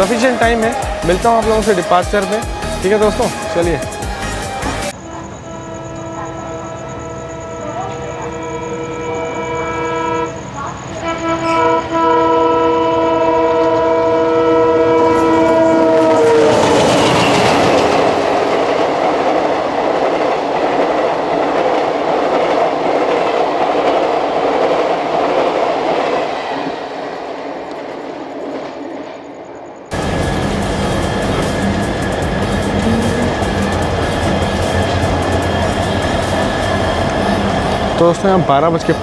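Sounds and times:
train coaches rushing past: 0:00.0 - 0:12.0, 0:14.7 - 0:39.0
train horn chord: 0:04.9 - 0:17.5, 0:29.9 - 0:36.1.

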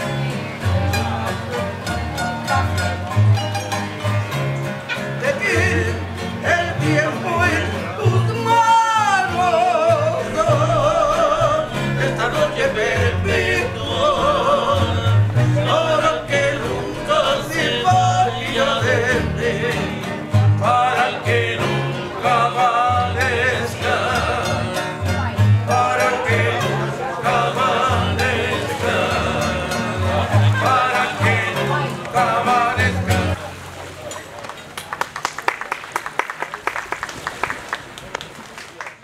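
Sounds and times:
pulsing bass: 0:08.1 - 0:31.9.

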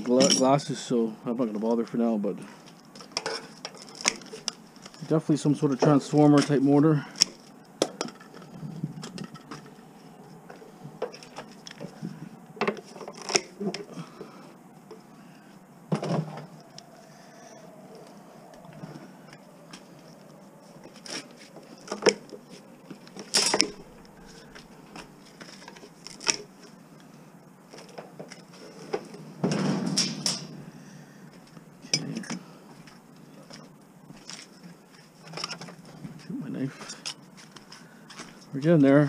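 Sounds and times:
hand tools clinking on metal: 0:00.0 - 0:00.8.

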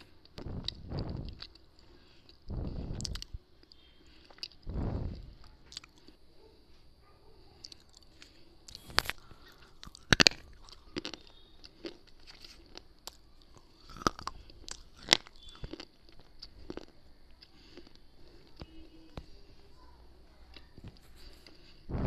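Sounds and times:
crunchy chewing: 0:00.0 - 0:22.0.

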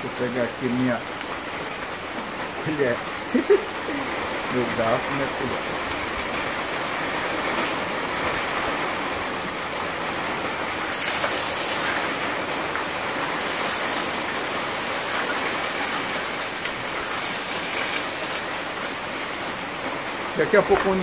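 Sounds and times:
sausage sizzling in a pan: 0:00.0 - 0:05.4, 0:09.9 - 0:21.0
fork stirring in a pan: 0:10.7 - 0:19.7.

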